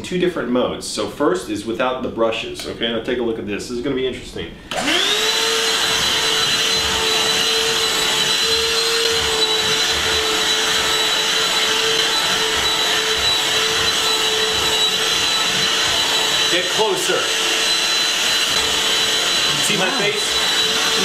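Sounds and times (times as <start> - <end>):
handheld vacuum running: 4.7 - 21.0.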